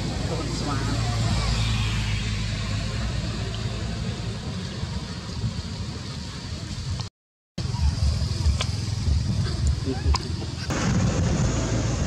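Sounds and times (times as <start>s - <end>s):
low rumble: 7.6s - 12.0s.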